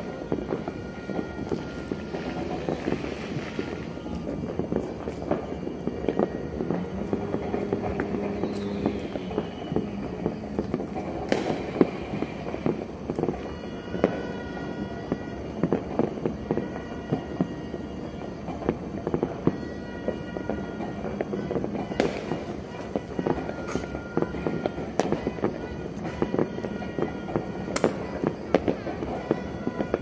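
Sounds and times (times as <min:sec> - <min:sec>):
falling whistle: 0:00.0 - 0:04.2, 0:05.8 - 0:12.8, 0:13.4 - 0:30.0
distant firecrackers popping and banging: 0:00.0 - 0:30.0.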